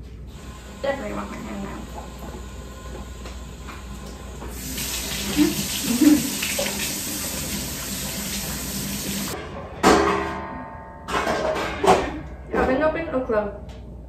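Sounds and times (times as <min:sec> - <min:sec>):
faucet water running into sink: 0:00.3 - 0:09.4.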